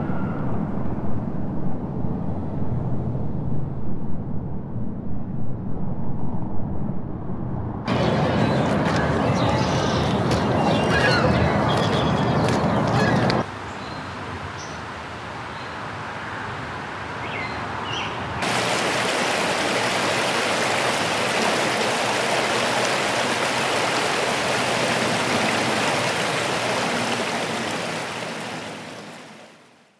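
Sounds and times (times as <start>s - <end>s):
flowing stream rushing: 7.9s - 11.8s, 18.4s - 29.8s.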